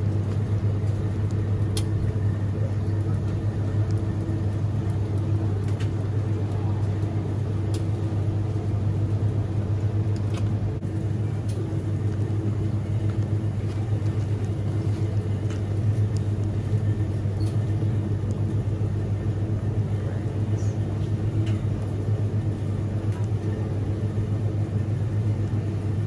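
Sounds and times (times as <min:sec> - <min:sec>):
refrigerator electrical hum: 0:00.0 - 0:26.0.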